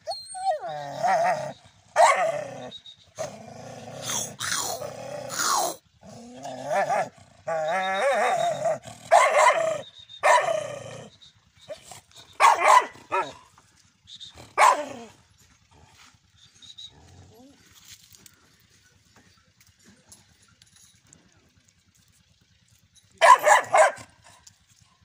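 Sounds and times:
dog growling: 0.5s - 9.1s
dog barking: 2.0s - 2.3s, 9.1s - 10.6s, 12.4s - 13.4s, 14.6s - 14.9s, 23.2s - 24.1s.

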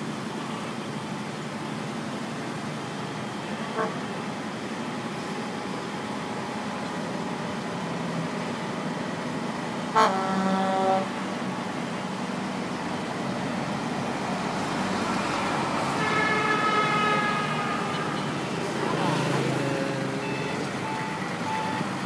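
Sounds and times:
crane engine running: 0.0s - 22.0s
short horn-like toot: 3.7s - 4.0s, 10.0s - 11.1s.

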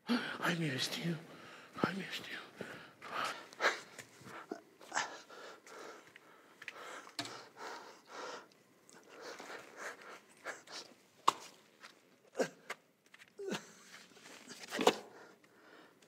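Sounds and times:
faint breathing: 1.3s - 11.0s, 15.1s - 16.0s.

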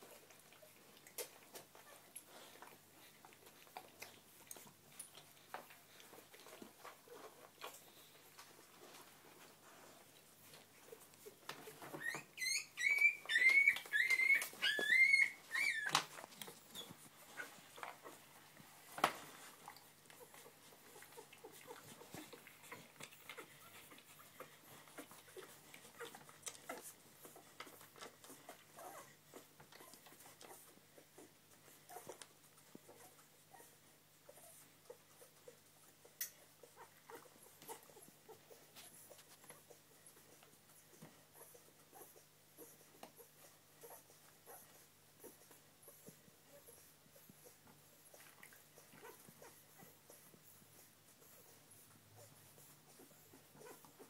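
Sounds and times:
faint rustling and clicks: 0.0s - 54.0s
puppies squealing: 11.9s - 16.1s.

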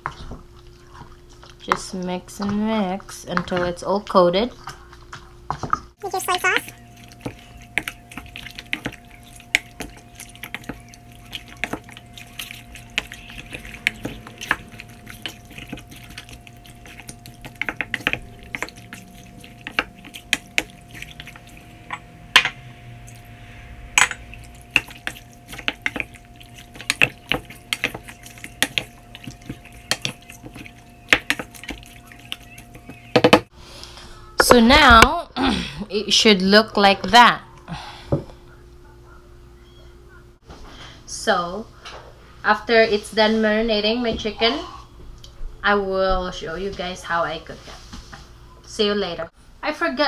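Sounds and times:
wet squelching and sloshing: 5.9s - 33.5s.

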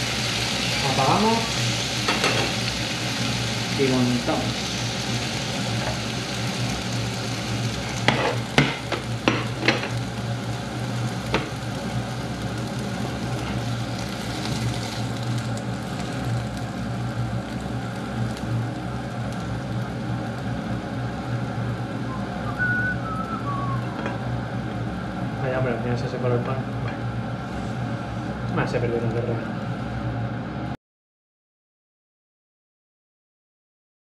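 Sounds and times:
beef and onions sizzling in a pan: 0.0s - 25.3s.

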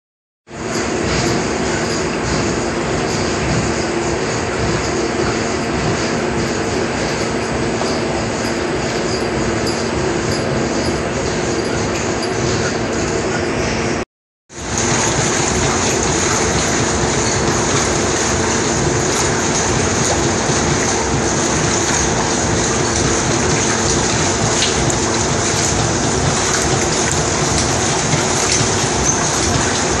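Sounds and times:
water churning and splashing: 14.5s - 30.0s.

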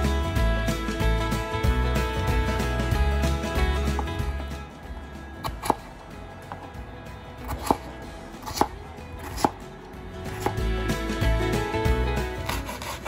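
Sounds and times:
background music: 0.0s - 13.0s
knife chopping on wooden board: 5.4s - 5.9s, 7.4s - 9.6s, 10.3s - 10.7s, 12.4s - 13.0s.

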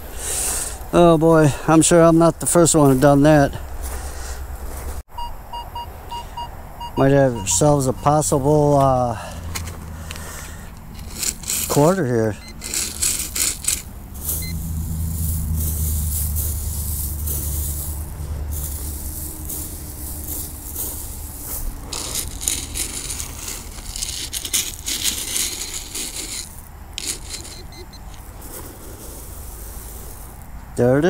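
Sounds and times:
gravel scraping and rattling: 0.0s - 5.1s, 7.0s - 31.0s
low vehicle drone: 2.3s - 24.2s.

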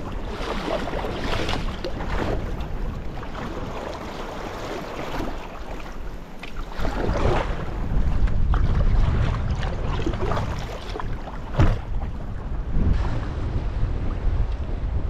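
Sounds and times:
paddle splashes: 0.0s - 14.5s
waves against hull: 0.0s - 15.0s
wind buffeting microphone: 0.0s - 15.0s.

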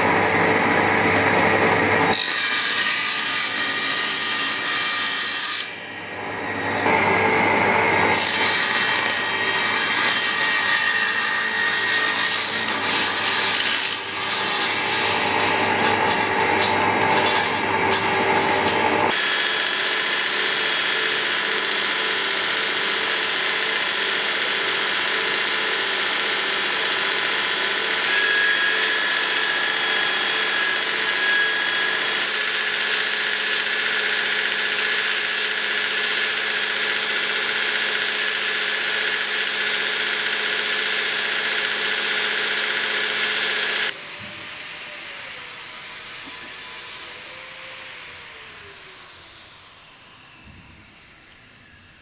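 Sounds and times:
table saw cutting wood: 0.0s - 52.0s
belt grinder running: 6.5s - 44.0s.

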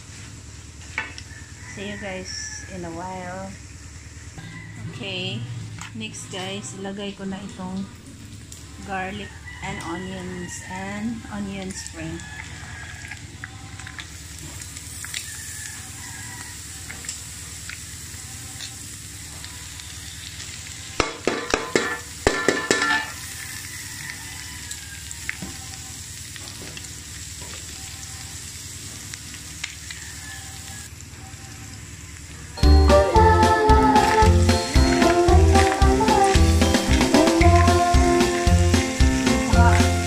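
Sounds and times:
meat sizzling in a wok: 11.7s - 40.0s.

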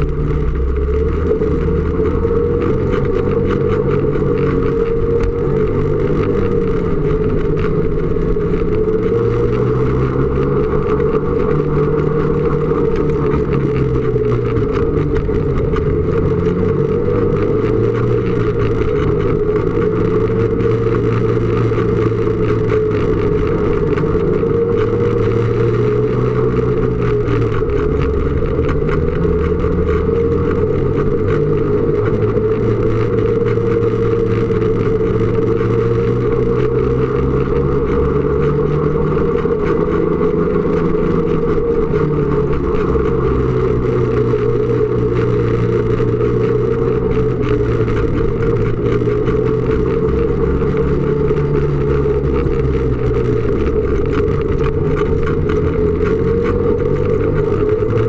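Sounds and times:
snowmobile engine running: 0.0s - 58.0s.

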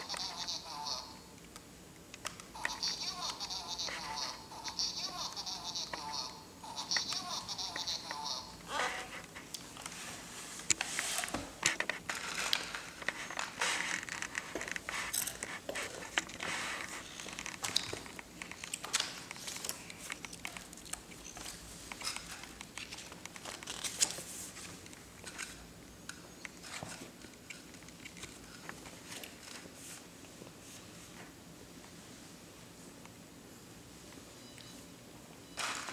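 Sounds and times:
crinkling and rustling: 8.7s - 25.6s, 26.4s - 31.3s.

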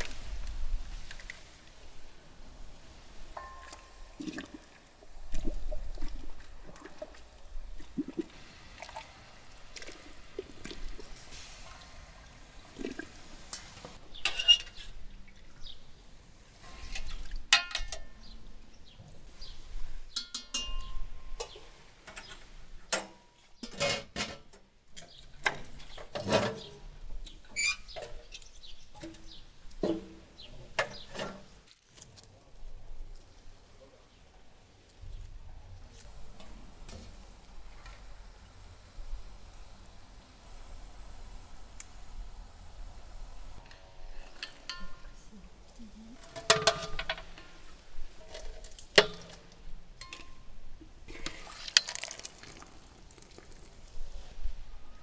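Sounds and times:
water splashing and sloshing in pot: 0.0s - 17.9s, 46.2s - 54.6s
wire skimmer clinking on pot: 3.4s - 4.2s, 17.0s - 18.2s, 20.1s - 21.6s, 43.6s - 45.2s, 46.2s - 52.6s.

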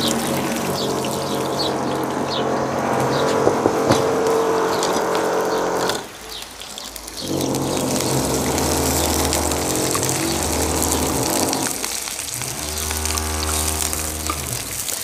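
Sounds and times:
onion sizzling in oil: 6.0s - 15.0s.

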